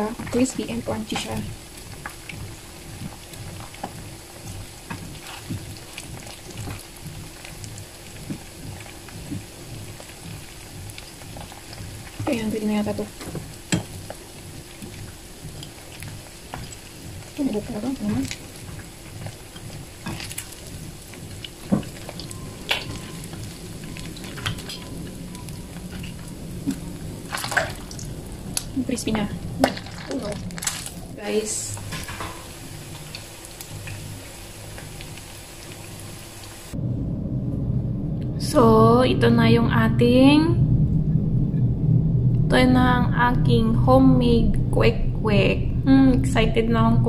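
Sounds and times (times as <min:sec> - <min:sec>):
eggs sizzling in hot oil: 0:00.0 - 0:36.8.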